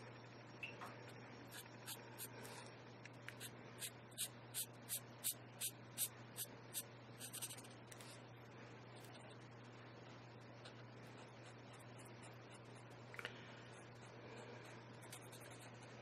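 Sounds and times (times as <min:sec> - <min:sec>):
marker scratching on paper: 0:07.2 - 0:07.7.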